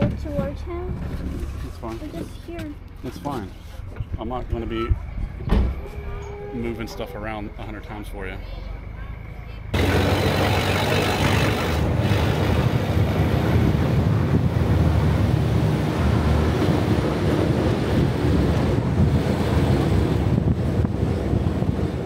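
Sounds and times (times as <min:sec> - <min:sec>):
vehicle engine and tyre noise: 0:07.6 - 0:22.0
wind buffeting microphone: 0:09.7 - 0:22.0.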